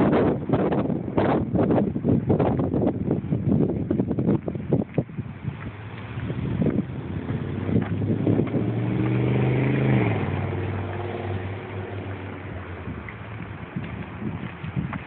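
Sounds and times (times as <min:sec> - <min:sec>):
vehicle engine accelerating: 0:05.6 - 0:15.0.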